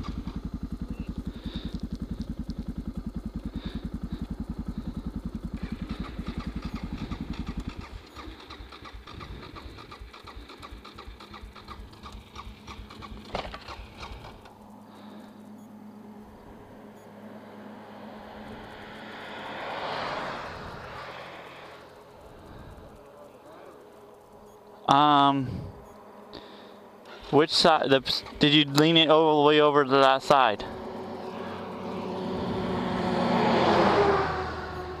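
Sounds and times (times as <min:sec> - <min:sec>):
light rapid mechanical rhythm: 0:00.0 - 0:14.6
car approaching: 0:00.0 - 0:35.0
motorcycle engine running: 0:00.0 - 0:35.0.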